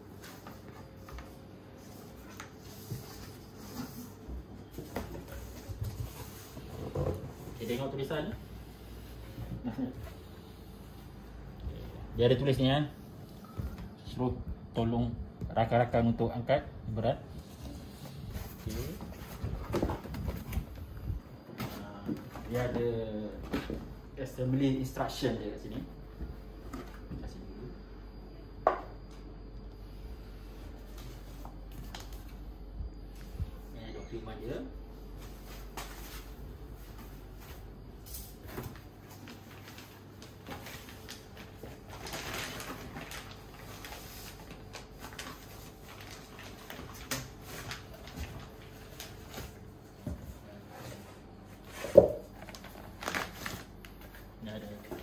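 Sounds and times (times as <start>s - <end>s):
plastic wrapping rustling: 35.3s - 55.0s
cardboard packaging handled: 38.4s - 49.6s, 51.7s - 54.2s.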